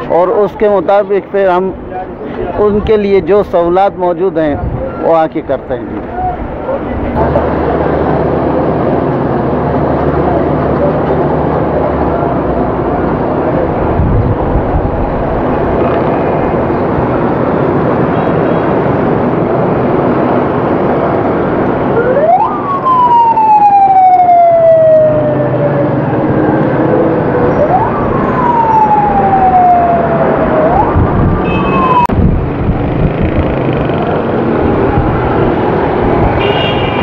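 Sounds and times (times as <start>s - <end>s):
motorcycles and passing vehicles: 4.6s - 37.0s
siren wailing: 21.7s - 32.2s.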